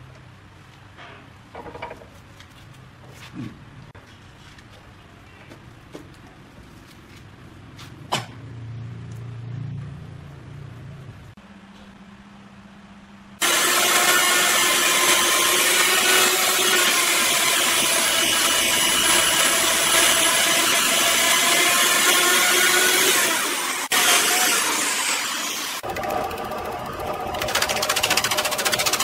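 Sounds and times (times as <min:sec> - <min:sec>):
electric chainsaw cutting wood: 0:13.4 - 0:29.0
lathe spinning log: 0:13.4 - 0:29.0.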